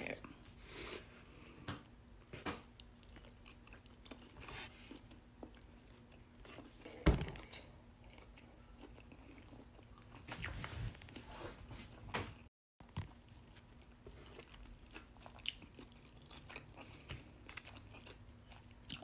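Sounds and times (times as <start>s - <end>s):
person chewing: 2.7s - 10.5s, 12.9s - 19.0s.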